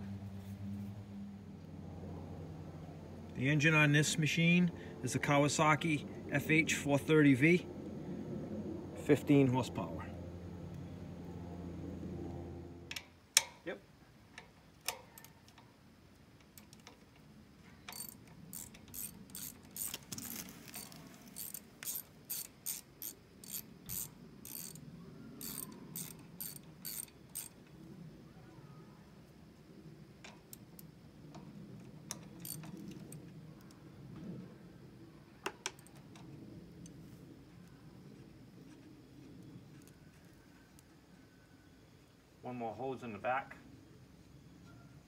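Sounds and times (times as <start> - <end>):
socket ratchet clicking: 17.9 - 27.6.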